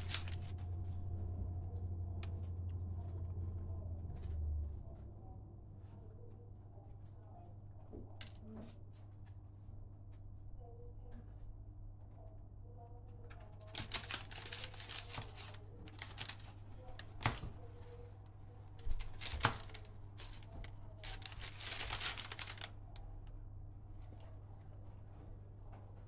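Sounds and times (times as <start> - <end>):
bread crackling and crinkling: 0.0 - 1.1, 13.5 - 23.2.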